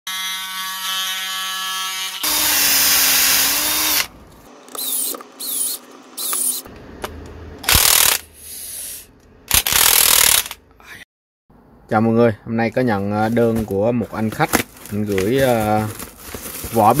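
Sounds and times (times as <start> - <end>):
oscillating multi-tool cutting plastic: 0.1 - 6.7
electric screwdriver whirring: 7.7 - 8.2, 9.5 - 10.6.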